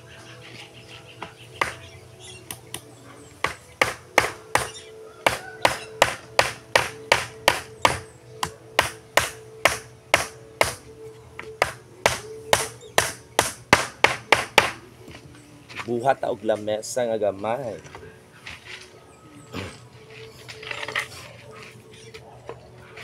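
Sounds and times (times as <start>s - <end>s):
hammer driving nails into wood: 3.5s - 10.8s, 11.6s - 14.8s.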